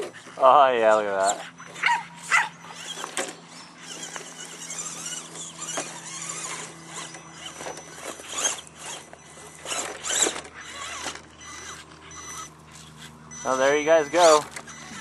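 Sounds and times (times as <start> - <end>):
rc car motor whirring: 0.0 - 15.0
tyres scrabbling on rock: 1.7 - 12.1.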